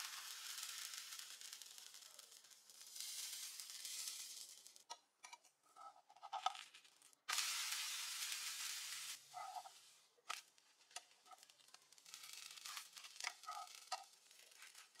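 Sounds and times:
batter sizzling in a frying pan: 0.0 - 4.9, 5.8 - 15.0
metal spatula scraping a pan: 12.0 - 15.0.

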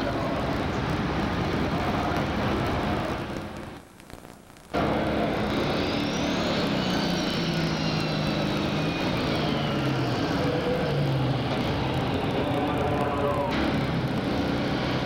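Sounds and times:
high turbo whine: 0.0 - 15.0
diesel engine revving: 4.8 - 15.0.

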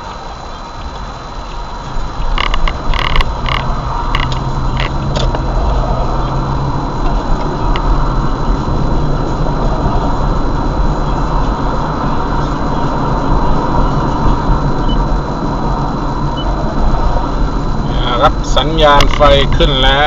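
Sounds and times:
car engine and tyre noise: 0.0 - 20.0
low hum: 0.0 - 20.0
sharp clicks: 2.3 - 5.5.

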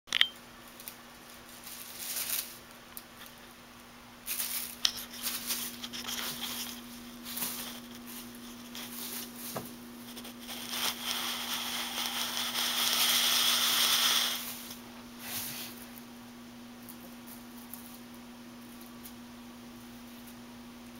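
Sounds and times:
party streamers crinkling: 0.7 - 3.5, 4.2 - 14.8.

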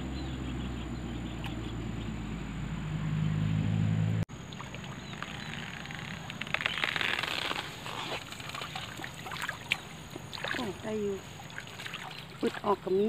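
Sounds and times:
low motor hum: 0.0 - 13.0
water splashing and trickling: 4.3 - 13.0.

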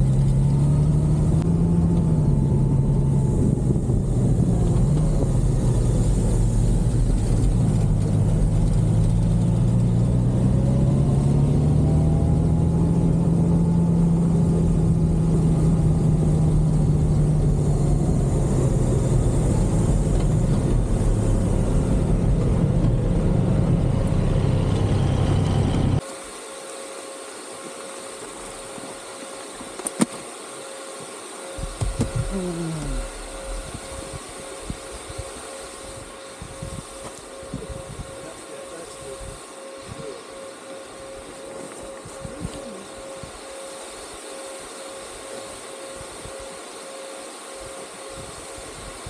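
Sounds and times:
motorcycle engine running: 0.0 - 26.0
thin steady hum: 25.4 - 49.0
brief falling whine: 30.8 - 49.0.

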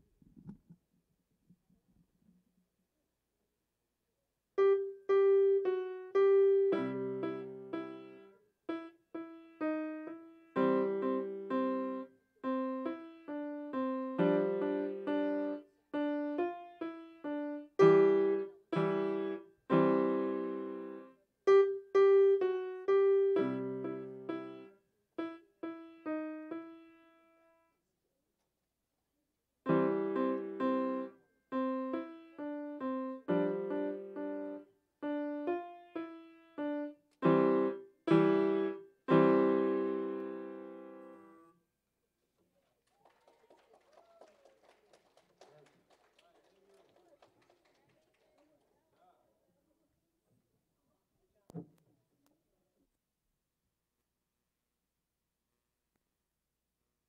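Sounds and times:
slow piano melody: 4.6 - 27.6, 29.7 - 41.5.

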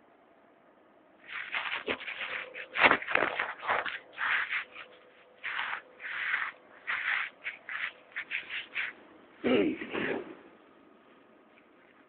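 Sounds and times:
rubbing on phone microphone: 1.3 - 9.0.

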